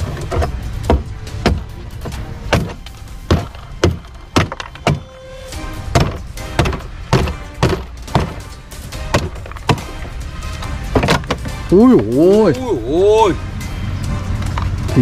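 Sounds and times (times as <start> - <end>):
machete chopping hollow shell: 5.9 - 10.0.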